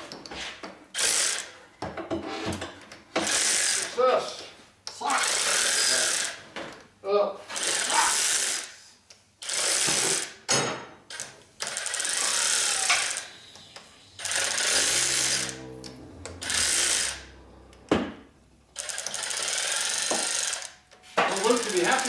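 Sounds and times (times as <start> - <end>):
air tool running in bursts: 1.0 - 1.6, 3.2 - 4.0, 5.2 - 6.4, 7.5 - 8.8, 9.4 - 10.4, 11.6 - 17.5, 18.8 - 20.7, 21.3 - 22.0.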